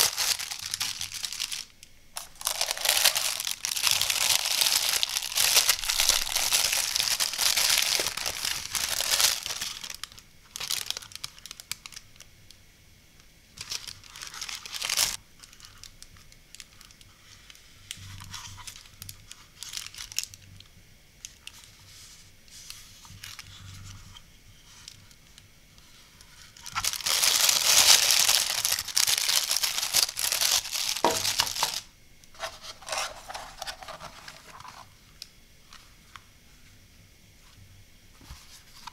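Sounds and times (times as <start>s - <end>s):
plastic bag crinkling: 0.0s - 12.0s, 13.6s - 17.0s, 17.9s - 20.4s, 26.5s - 34.9s.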